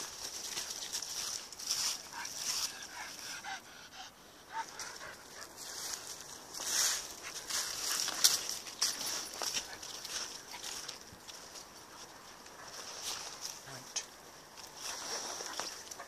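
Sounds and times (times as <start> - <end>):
footsteps crunching dry leaves: 0.0 - 3.4, 4.5 - 13.8, 14.6 - 16.0
dog panting: 1.9 - 6.2.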